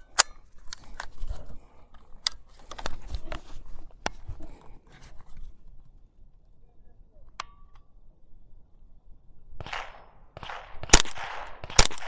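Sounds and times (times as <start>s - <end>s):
rifle handling clicks and knocks: 0.0s - 6.0s.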